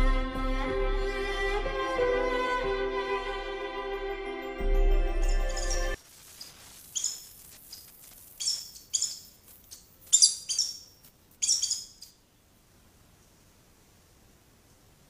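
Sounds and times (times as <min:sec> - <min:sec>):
bird chirping: 0:05.1 - 0:12.5.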